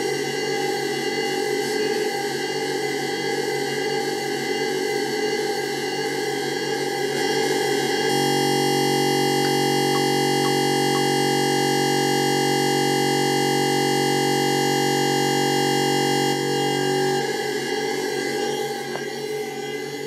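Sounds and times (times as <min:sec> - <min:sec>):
synthesizer drone: 0:07.2 - 0:20.0.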